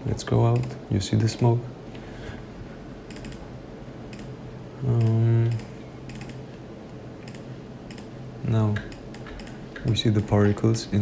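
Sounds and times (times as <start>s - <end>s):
computer keyboard and mouse clicks: 3.1s - 3.4s, 4.9s - 6.4s, 7.2s - 8.1s, 8.7s - 10.4s
man saying uhh: 4.8s - 5.6s.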